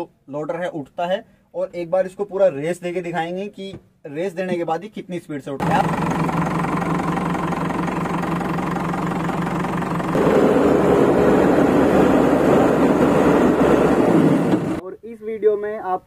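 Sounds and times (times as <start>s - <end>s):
diesel engine idling and revving: 5.6s - 14.8s.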